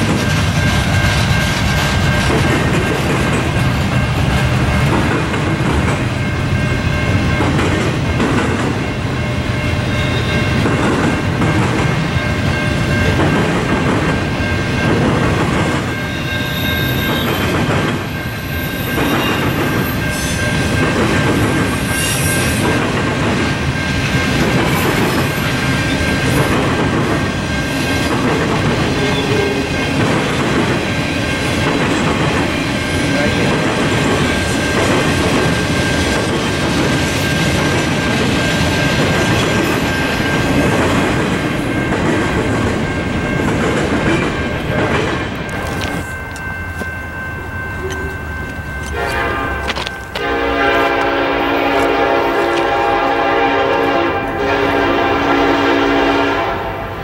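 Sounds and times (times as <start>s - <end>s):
train wheels clacking over rail joints: 0.0s - 6.3s, 7.3s - 8.8s, 16.9s - 18.2s, 18.9s - 46.9s.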